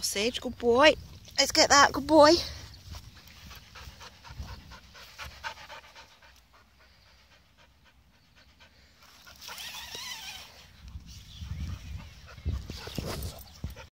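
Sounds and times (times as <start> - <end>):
dog panting quickly: 2.9 - 9.6, 11.4 - 13.9.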